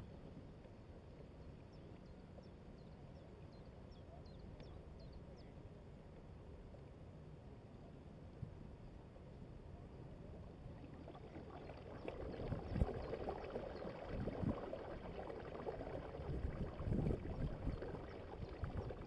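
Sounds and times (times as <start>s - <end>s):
water gurgling along a hull: 0.0s - 19.0s
wind buffeting microphone: 13.9s - 14.8s, 16.1s - 19.0s.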